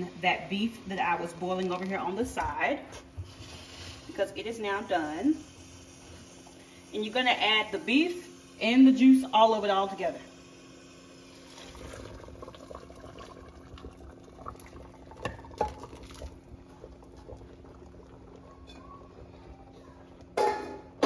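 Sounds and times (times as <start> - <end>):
stew simmering: 0.0 - 7.8, 10.3 - 20.5
liquid pouring and splashing: 11.3 - 18.6.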